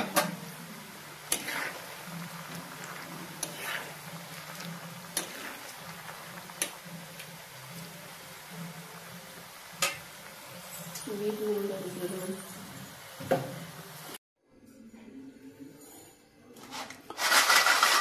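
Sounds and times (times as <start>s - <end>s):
oil sizzling: 0.0s - 14.2s.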